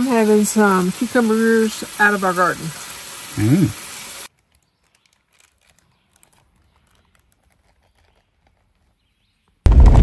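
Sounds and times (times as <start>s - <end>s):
patties sizzling in a frying pan: 0.0s - 4.3s.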